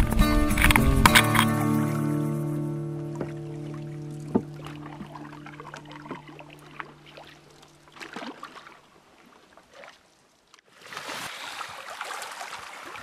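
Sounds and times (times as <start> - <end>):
background music: 0.0 - 6.0
canoe paddles splashing: 0.0 - 13.0
water lapping and sloshing: 0.6 - 13.0.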